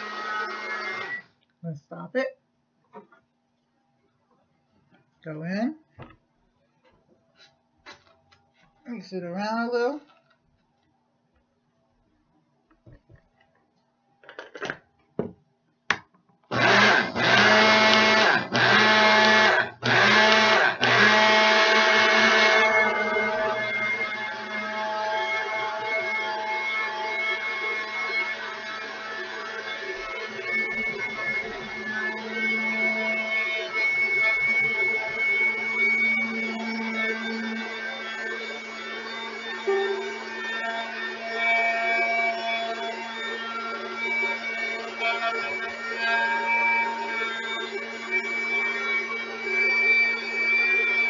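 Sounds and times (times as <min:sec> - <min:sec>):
electric blender grinding: 0:00.0 - 0:01.2, 0:16.5 - 0:51.0.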